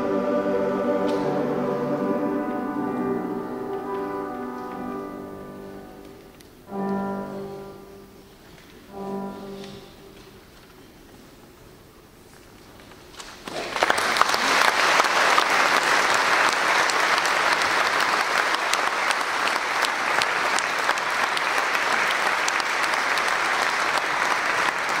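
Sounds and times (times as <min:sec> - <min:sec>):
audience applauding: 0:13.4 - 0:25.0.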